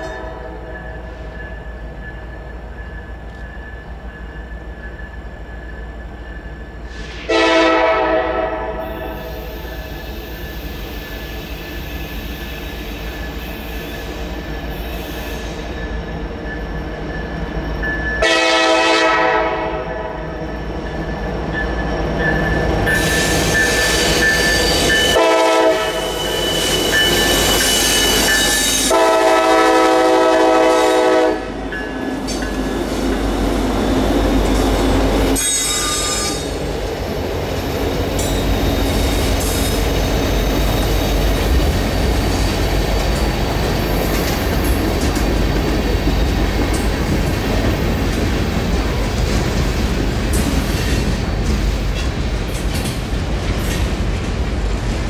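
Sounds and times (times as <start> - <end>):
train air horn blasts: 0.0 - 0.7, 6.9 - 9.5, 18.2 - 20.2, 25.1 - 26.3, 28.8 - 31.6, 35.4 - 36.6
rumble of passing train: 0.0 - 55.0
thin wheel squeal: 26.0 - 28.9.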